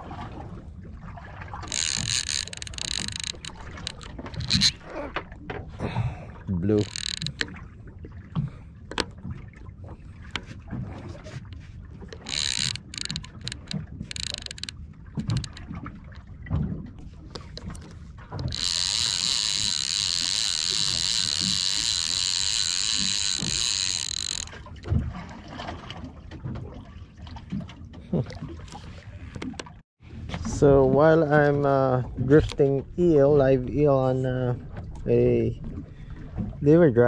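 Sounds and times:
reel gears whirring: 0:01.6 - 0:05.1, 0:06.7 - 0:07.6, 0:12.0 - 0:15.7, 0:17.3 - 0:24.9
fishing reel winding: 0:01.7 - 0:04.9, 0:06.7 - 0:07.5, 0:12.1 - 0:15.6, 0:17.6 - 0:24.6.

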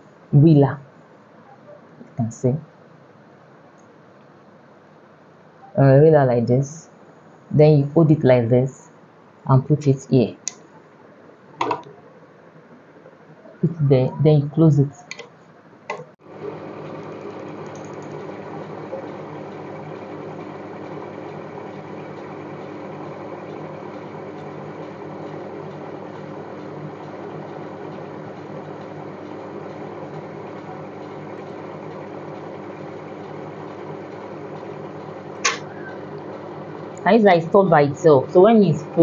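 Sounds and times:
buttonhole machine running: 0:16.2 - 0:39.0
sharp click: 0:35.4 - 0:35.7.

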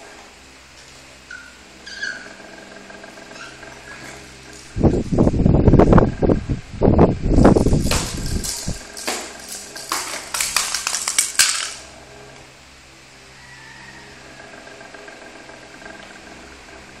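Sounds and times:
loud low rumbling: 0:04.6 - 0:09.0
small hard objects clicking: 0:07.4 - 0:11.9.

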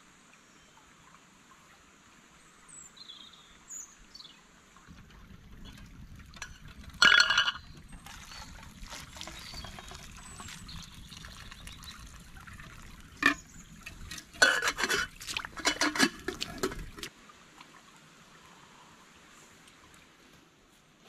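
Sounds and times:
liquid pouring: 0:04.9 - 0:17.1
metal pot clinking and clattering: 0:06.4 - 0:08.6, 0:13.2 - 0:17.1.

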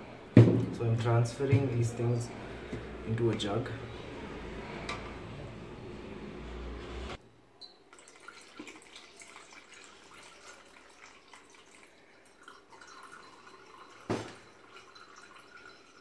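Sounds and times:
liquid trickling into a glass jug: 0:07.6 - 0:16.0.

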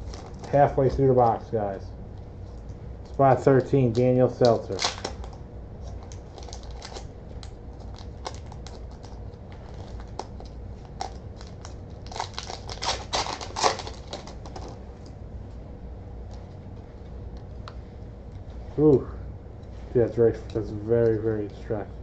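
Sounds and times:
foil wrapper crinkling and tearing: 0:00.0 - 0:00.8, 0:03.1 - 0:14.8.

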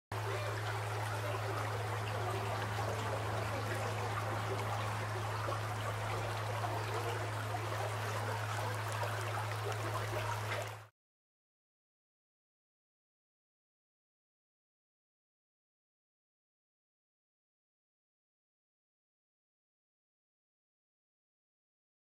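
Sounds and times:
stream babbling over rocks: 0:00.1 - 0:10.9.

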